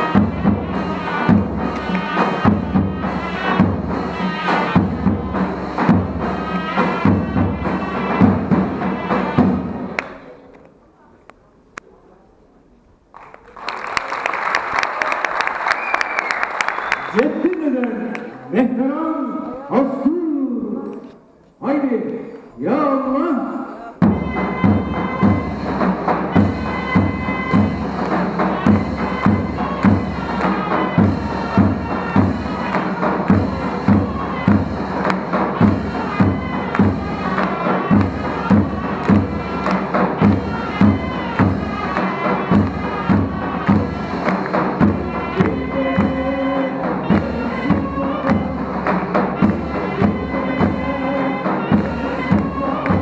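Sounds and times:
steady drumbeat: 0.0s - 10.0s, 24.0s - 53.0s.

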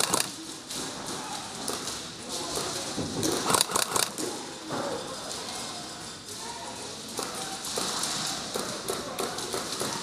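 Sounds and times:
airsoft gun fire clacks: 0.0s - 0.4s, 3.3s - 4.2s.

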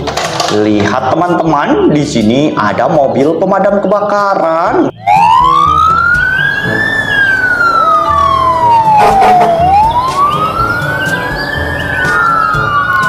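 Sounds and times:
fire truck siren wailing: 4.9s - 13.0s.

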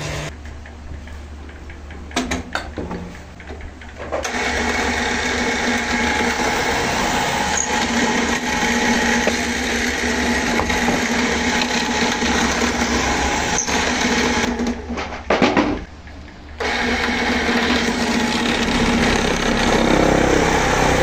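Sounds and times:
drill press boring into wood: 4.2s - 14.6s, 16.6s - 21.0s.

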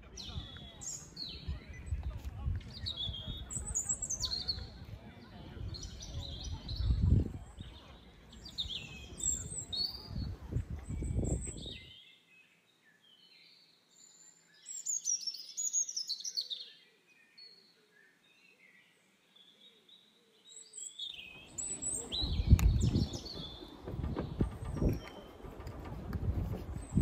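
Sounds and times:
wind buffeting microphone: 0.0s - 11.9s, 21.2s - 27.0s
songbirds chirping: 0.0s - 27.0s.

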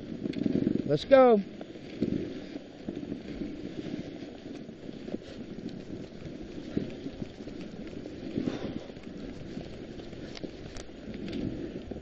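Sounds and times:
sled runners scraping on snow: 0.0s - 12.0s
dog paws pattering: 0.1s - 12.0s
faint clicks: 0.2s - 0.7s, 1.6s - 12.0s.

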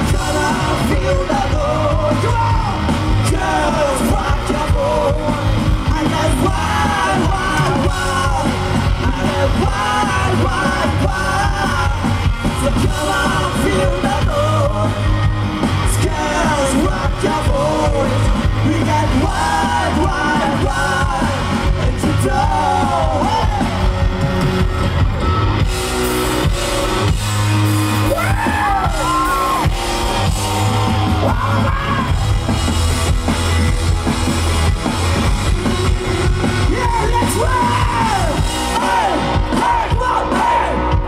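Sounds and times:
electric guitar: 0.0s - 41.0s
rock band playing live: 0.0s - 41.0s
man yelling vocals: 30.9s - 32.2s, 36.1s - 40.9s.

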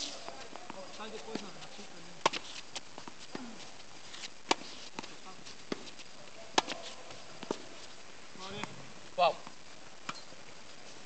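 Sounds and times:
tennis ball struck by racquets: 2.2s - 3.5s, 4.4s - 5.1s, 5.7s - 7.7s.

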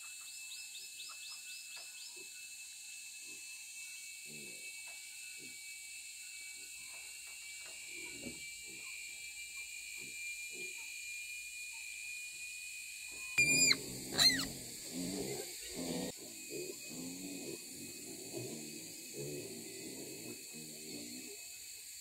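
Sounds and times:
high-pitched drone: 13.2s - 15.1s
pig squeals: 13.4s - 18.5s
pigs grunting: 13.4s - 21.4s.

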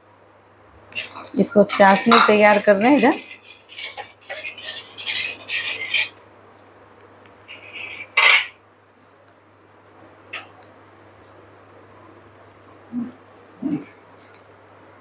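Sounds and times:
metal clatter against pan: 1.0s - 6.1s, 7.5s - 8.6s
metal spoon scraping a pan: 1.0s - 6.2s, 7.5s - 8.5s.

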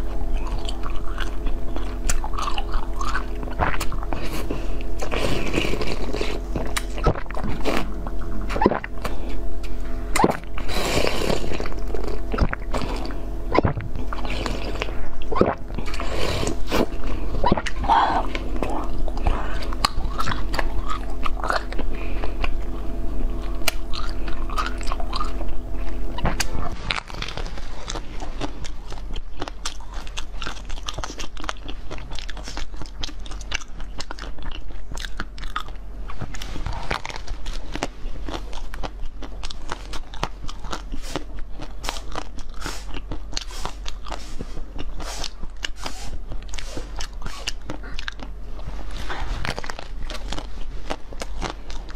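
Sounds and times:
frozen dessert shell crunching: 0.0s - 51.9s
jelly squishing and slurping: 0.0s - 51.9s.

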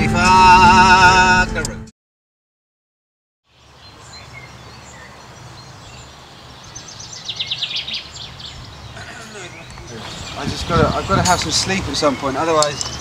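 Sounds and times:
bird chirps: 3.4s - 13.0s.

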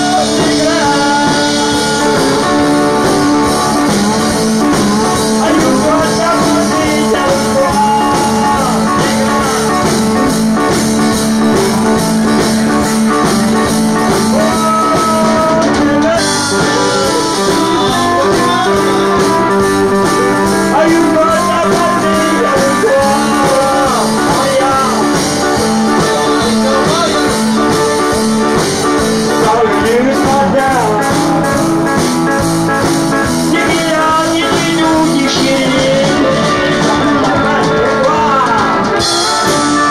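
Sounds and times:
man singing into microphone: 0.0s - 10.7s, 13.9s - 32.0s, 33.2s - 39.9s
guitar: 0.0s - 39.9s
button accordion playing: 15.6s - 30.1s.

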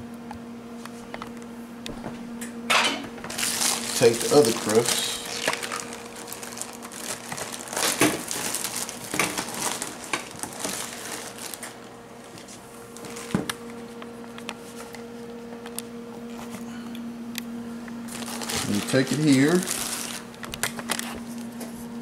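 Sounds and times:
steady low hum: 0.0s - 22.0s
wrapping crinkling and rustling: 3.2s - 13.8s, 18.0s - 21.8s.

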